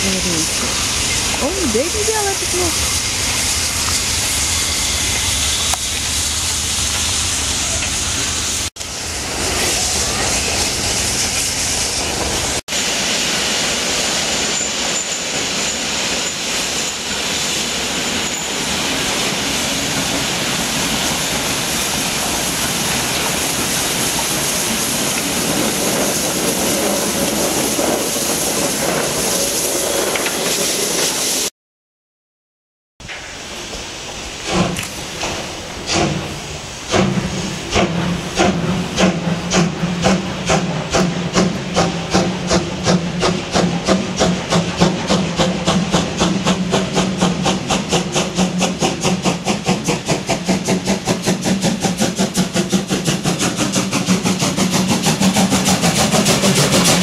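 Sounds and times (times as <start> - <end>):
steam locomotive hissing steam: 0.0 - 31.5, 33.1 - 57.0.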